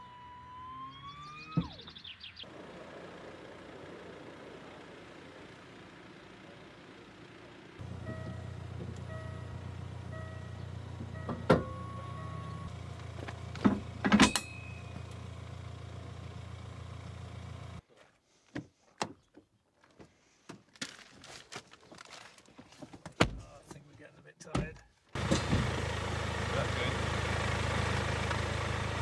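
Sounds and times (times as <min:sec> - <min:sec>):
metal clanks with ringing: 0:14.2 - 0:15.0.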